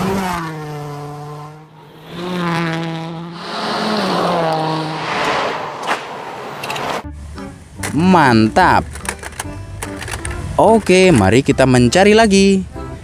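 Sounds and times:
rally car engine passing: 0:00.0 - 0:07.1
rushing noise: 0:01.7 - 0:07.1.

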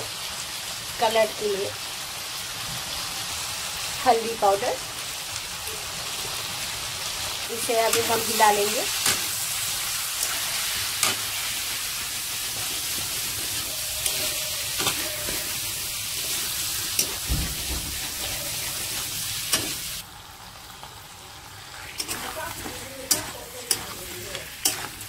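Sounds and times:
chicken sizzling in hot oil: 0:00.0 - 0:25.0
metal spatula scraping pan: 0:12.4 - 0:19.9, 0:21.7 - 0:25.0.

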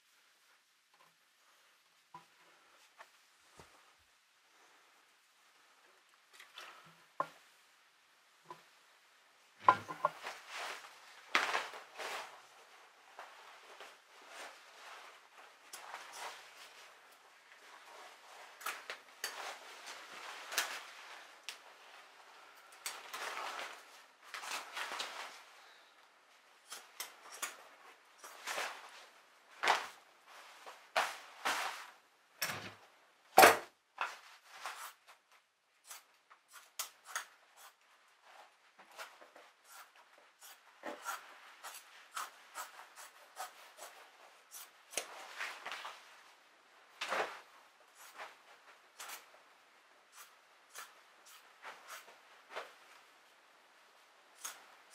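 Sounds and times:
fabric rustling: 0:09.6 - 0:26.6, 0:27.2 - 0:33.3, 0:43.6 - 0:54.9.

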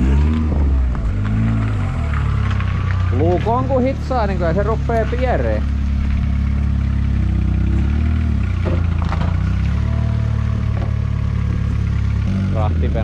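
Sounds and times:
vehicle engine running at low revs: 0:00.0 - 0:13.0.

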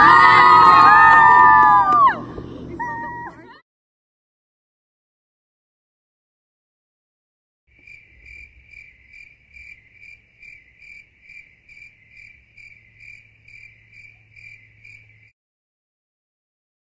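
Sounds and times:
steady low hum: 0:00.0 - 0:03.6.

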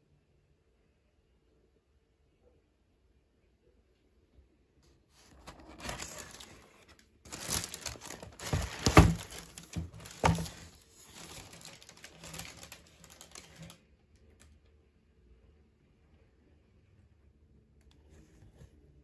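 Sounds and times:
hand rummaging in shoe box: 0:05.2 - 0:13.7
tissue paper crinkling: 0:05.2 - 0:13.8.

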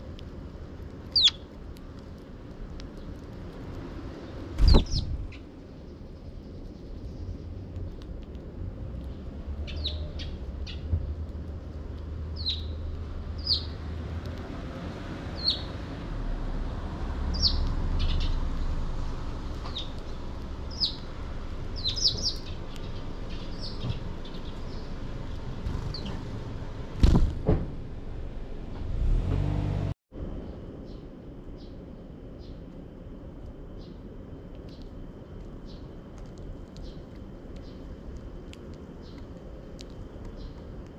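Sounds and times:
sparrows chirping: 0:01.1 - 0:01.6, 0:04.2 - 0:08.0, 0:09.1 - 0:10.9, 0:12.2 - 0:13.8, 0:15.4 - 0:15.8, 0:17.3 - 0:26.3, 0:35.6 - 0:36.0, 0:38.9 - 0:39.3, 0:40.2 - 0:40.7
low rumble: 0:04.6 - 0:05.5.

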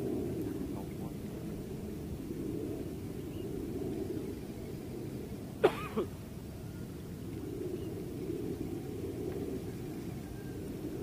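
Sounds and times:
low background rumble: 0:00.0 - 0:11.0
person coughing: 0:05.6 - 0:06.1.

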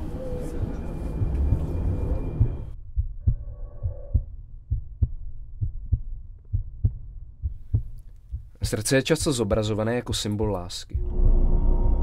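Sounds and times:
heartbeat thumps: 0:00.2 - 0:09.8.

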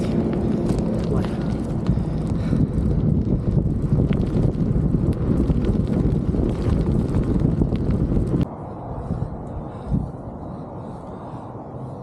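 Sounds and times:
bike tyres crunching on gravel: 0:00.0 - 0:08.4
wind buffeting microphone: 0:00.0 - 0:12.0.

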